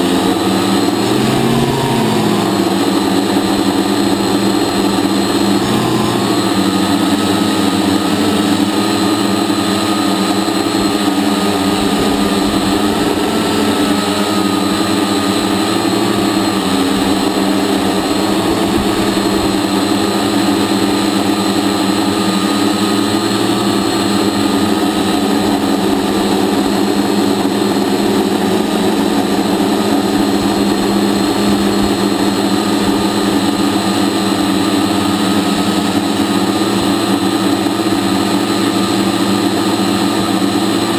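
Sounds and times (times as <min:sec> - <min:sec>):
drone motors and propellers whining: 0:00.0 - 0:40.9.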